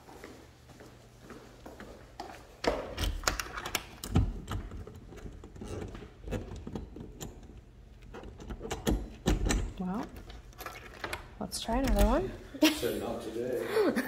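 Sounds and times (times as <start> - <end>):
key clicking in a door lock: 2.9 - 12.2.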